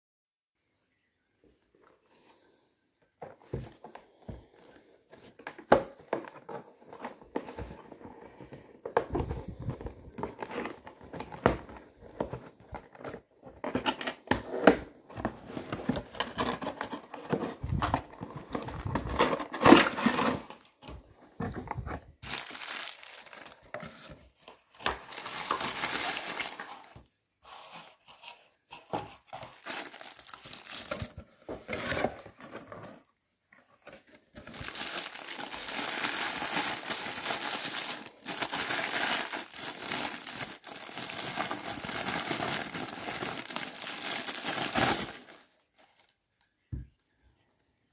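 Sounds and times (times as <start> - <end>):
cardboard box being opened: 5.4 - 28.0
paper crinkling and tearing: 29.4 - 31.1, 34.4 - 45.9.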